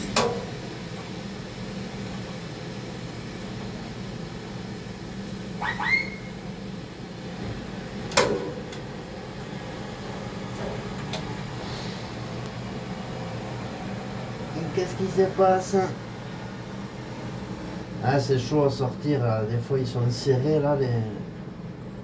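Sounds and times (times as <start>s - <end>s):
low machine hum: 0.0s - 22.0s
rising squeaks: 5.6s - 6.4s.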